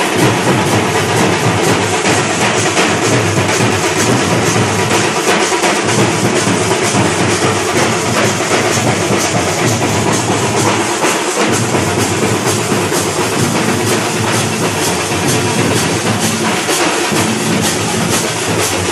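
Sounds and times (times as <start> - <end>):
drums beaten with sticks: 0.0 - 18.9.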